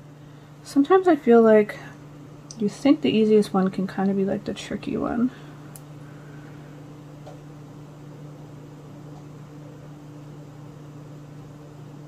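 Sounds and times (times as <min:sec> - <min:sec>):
low electric hum: 0:00.0 - 0:12.0.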